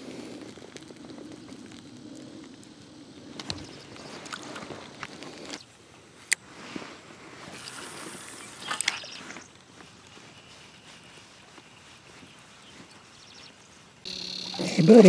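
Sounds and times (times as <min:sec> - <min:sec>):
rubbing hiss: 0:06.4 - 0:15.0.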